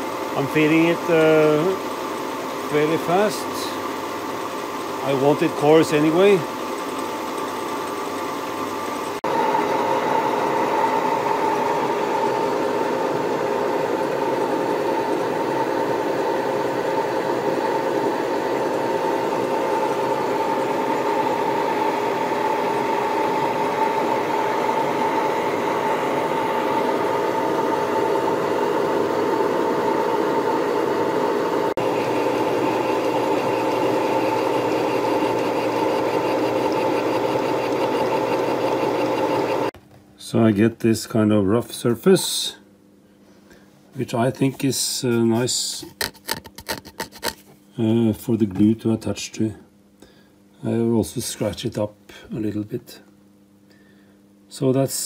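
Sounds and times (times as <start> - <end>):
machine whine: 0.0 - 39.8
milling cutter rasping metal: 46.0 - 47.4.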